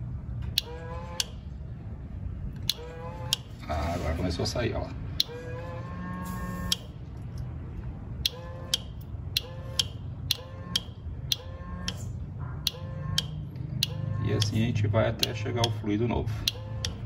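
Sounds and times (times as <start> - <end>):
electric pump whining and clicking: 0.4 - 1.5, 2.6 - 3.6, 5.2 - 7.4, 8.2 - 17.0.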